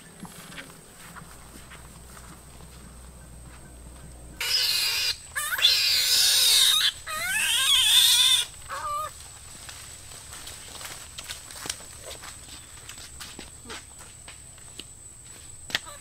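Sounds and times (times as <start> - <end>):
animal squealing: 4.4 - 9.2.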